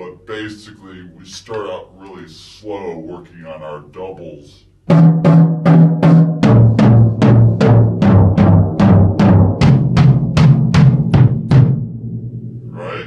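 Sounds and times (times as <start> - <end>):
drum toms struck with sticks: 4.9 - 12.8.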